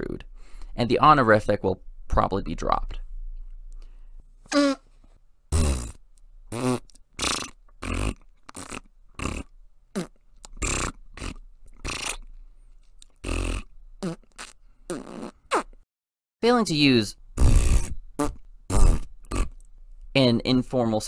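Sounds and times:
fart sounds: 4.5s - 4.8s, 5.5s - 12.2s, 13.2s - 15.8s, 17.4s - 19.6s.

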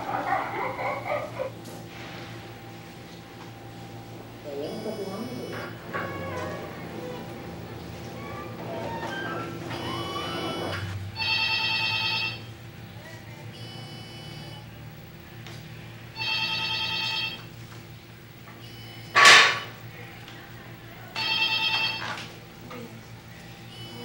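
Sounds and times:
telephone ringing: 8.6s - 12.6s, 16.1s - 17.6s, 21.1s - 22.4s, 23.7s - 24.0s.

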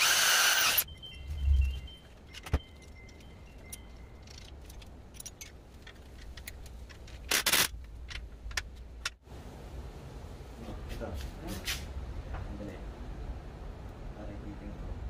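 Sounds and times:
metal bolt and wrench clinking: 2.0s - 8.6s.

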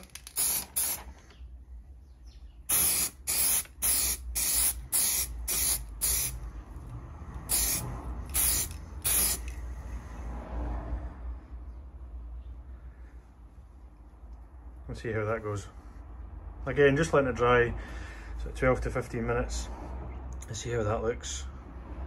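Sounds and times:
aerosol can spraying hisses: 0.3s - 1.1s, 2.7s - 6.4s, 7.5s - 9.5s.

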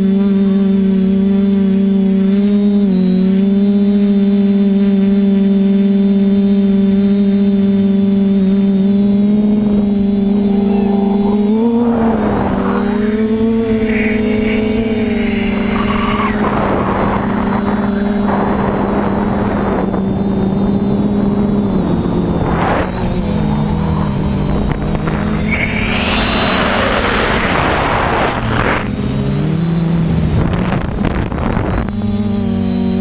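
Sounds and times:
quadcopter motors humming: 0.0s - 33.0s
rushing noise: 9.4s - 29.0s.

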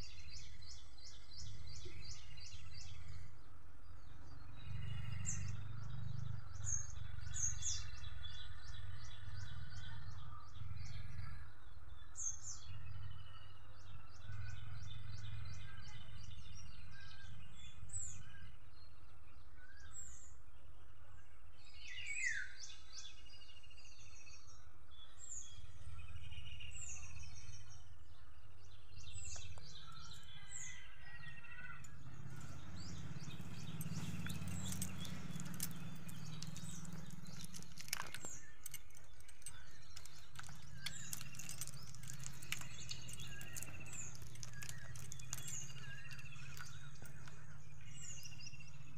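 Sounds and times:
birds chirping: 29.2s - 48.9s.

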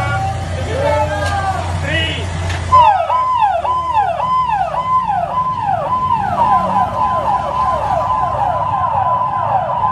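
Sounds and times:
police motorcycle siren yelping: 2.7s - 9.9s.

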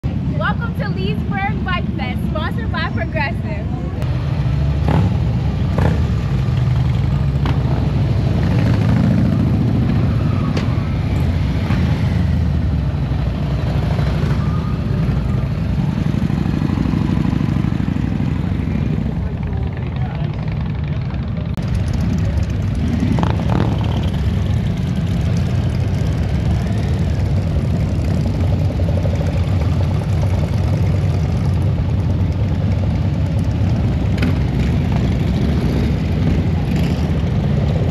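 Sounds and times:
motorcycle engines rumbling: 0.0s - 37.9s
people's voices: 0.3s - 4.0s.

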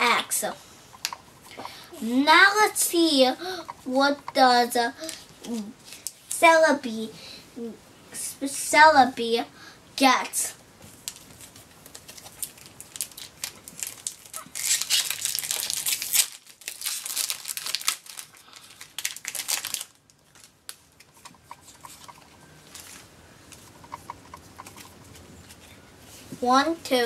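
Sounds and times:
foil wrapper crinkling and tearing: 11.0s - 22.1s.

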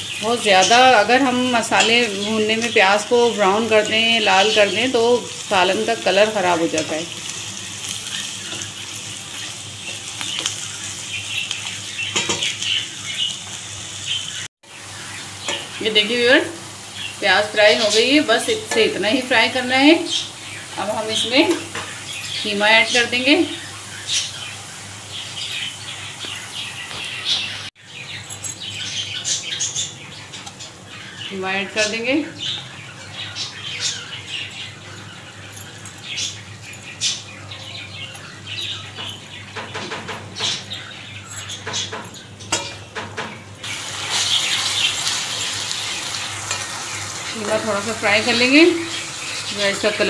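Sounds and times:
onions sizzling in hot oil: 0.0s - 27.7s, 43.6s - 50.0s
small birds chirping: 0.0s - 50.0s.

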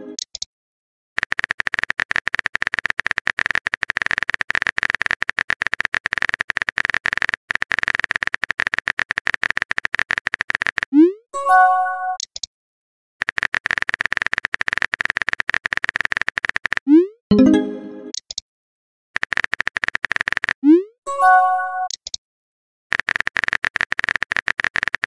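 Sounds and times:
phone keyboard clicks: 1.2s - 10.9s, 12.2s - 12.5s, 13.2s - 16.8s, 21.9s - 22.2s
message sent chime: 17.3s - 18.1s, 21.1s - 21.9s.

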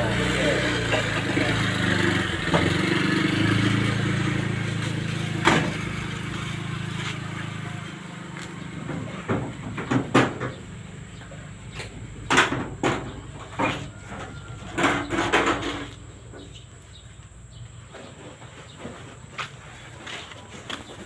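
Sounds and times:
metallic bangs from truck bed: 8.9s - 10.6s, 12.2s - 15.9s.

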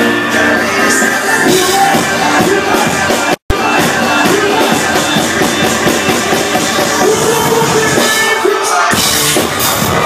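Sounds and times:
loud live concert music: 0.0s - 10.0s.

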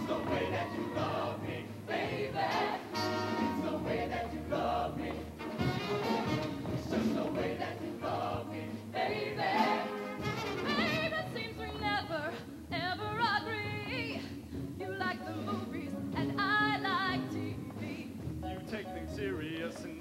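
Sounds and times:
choir singing: 0.0s - 10.4s.

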